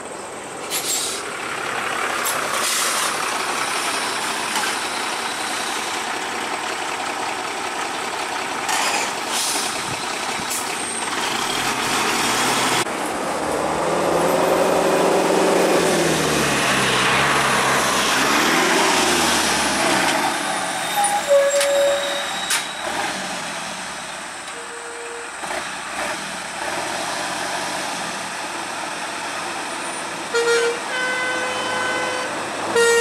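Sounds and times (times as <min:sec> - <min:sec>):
lorry diesel engine idling: 0:00.0 - 0:12.0
bus engine idling and revving: 0:00.0 - 0:33.0
short beeps: 0:21.0 - 0:22.8.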